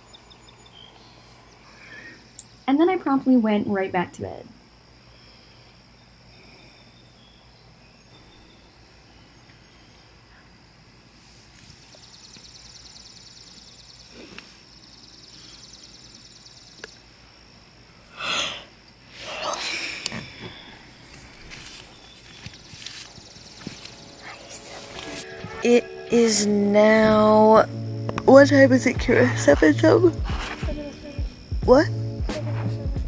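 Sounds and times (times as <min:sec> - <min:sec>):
faint steady hiss: 0:00.0 - 0:33.0
thin high whine: 0:18.2 - 0:33.0
high rapid trill: 0:24.2 - 0:30.8.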